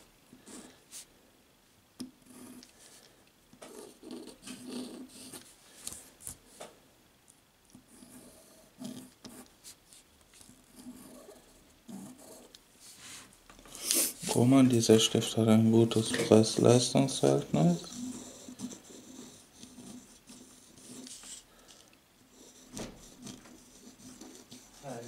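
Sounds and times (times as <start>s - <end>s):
pen nib scratching on paper: 3.6s - 5.5s, 7.7s - 9.8s, 10.4s - 12.6s, 17.7s - 25.0s.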